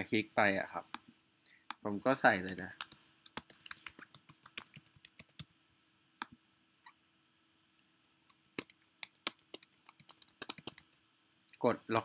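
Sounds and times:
computer keyboard typing: 2.4 - 5.5, 8.3 - 11.0.

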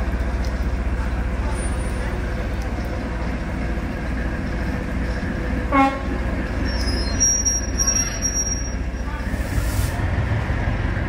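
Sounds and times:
diesel train rumble: 0.0 - 11.0
train horn toot: 5.7 - 6.2
high wheel squeal: 6.4 - 10.0.

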